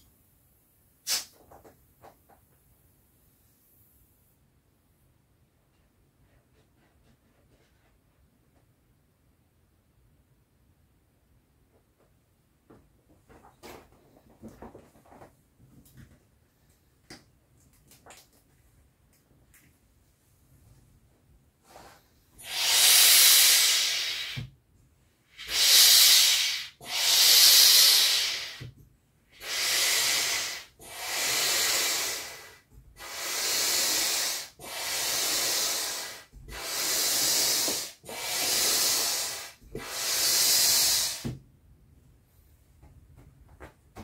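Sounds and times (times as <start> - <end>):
hand air pump rushes of air: 1.0 - 1.4, 21.7 - 24.5, 25.3 - 41.4.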